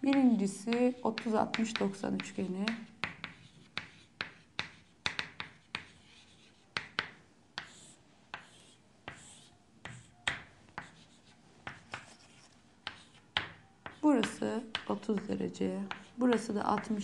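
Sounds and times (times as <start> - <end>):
chalk tapping on chalkboard: 0.1 - 17.0
chalk scraping on chalkboard: 0.7 - 7.0, 7.6 - 10.1, 10.8 - 15.3.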